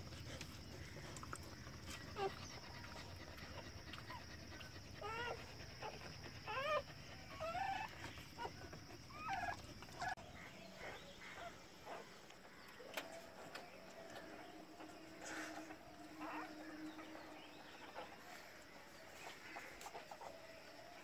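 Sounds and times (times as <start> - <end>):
puppies squeaking and whimpering: 1.8 - 3.1, 4.9 - 10.2, 14.8 - 18.5.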